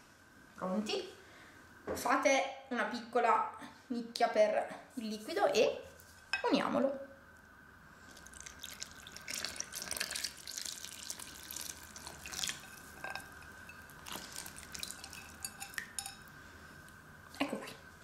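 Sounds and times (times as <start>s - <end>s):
liquid trickling into flour: 8.0s - 17.0s.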